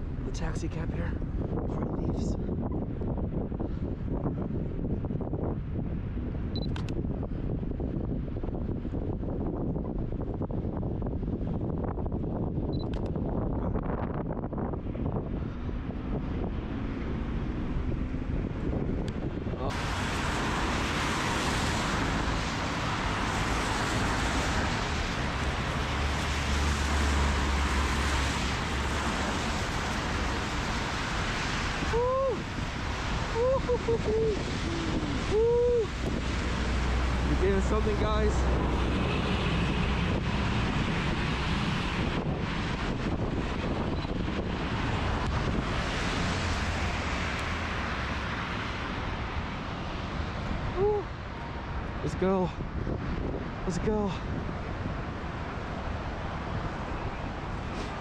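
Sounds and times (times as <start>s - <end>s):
wind buffeting microphone: 0.0s - 58.0s
car tyres hissing through slush: 19.8s - 37.5s, 57.5s - 58.0s.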